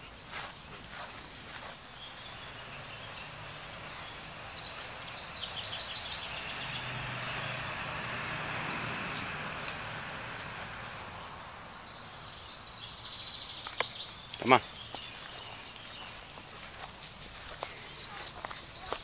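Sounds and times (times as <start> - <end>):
passing car: 2.0 - 13.4.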